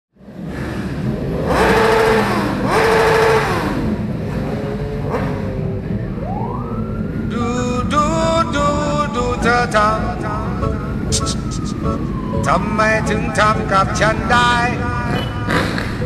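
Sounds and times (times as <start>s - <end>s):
motorcycle engines idling and revving: 0.2s - 16.0s
music: 8.6s - 16.0s.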